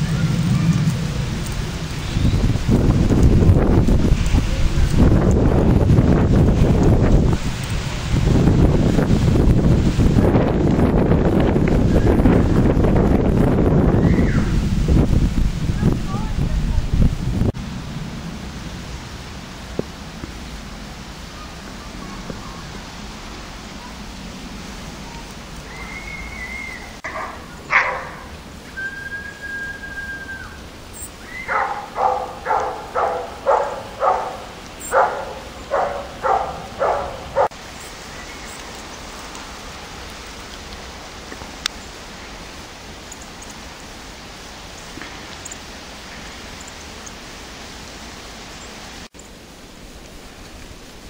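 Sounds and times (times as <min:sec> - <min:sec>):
dog barking: 0:27.0 - 0:28.3, 0:31.5 - 0:37.5.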